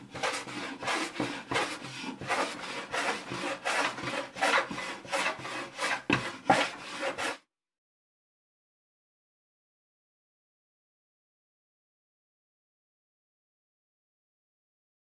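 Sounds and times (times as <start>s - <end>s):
hand plane shaving wood: 0.0s - 7.4s.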